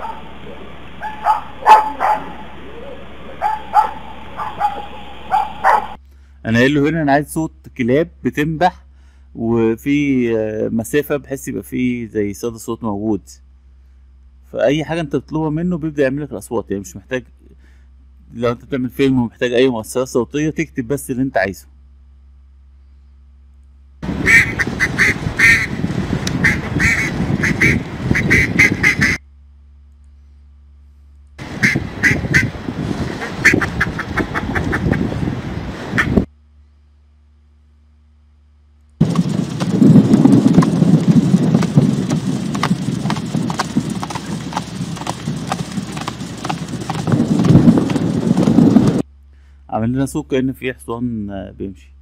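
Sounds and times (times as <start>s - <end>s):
low rumbling wash: 0.0s - 13.4s, 24.0s - 29.2s, 31.4s - 36.3s, 39.0s - 49.1s
duck quacking: 24.1s - 25.8s, 26.4s - 29.2s, 31.4s - 35.1s, 35.9s - 36.3s
horse hooves clip-clopping: 39.0s - 49.0s.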